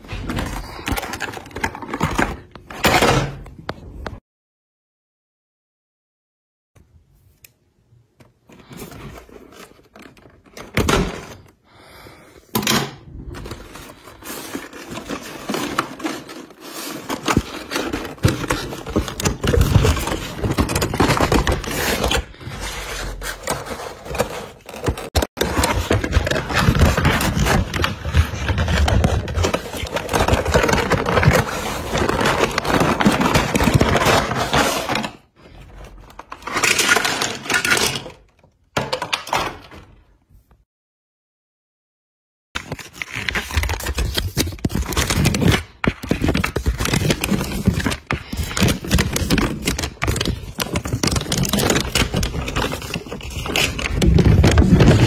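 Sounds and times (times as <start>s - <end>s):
packaging crackling and crinkling: 13.3s - 35.1s, 42.6s - 55.0s.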